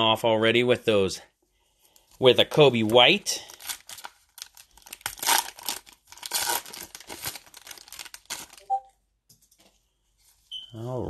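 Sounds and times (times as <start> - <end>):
foil wrapper tearing and crinkling: 2.8 - 8.7.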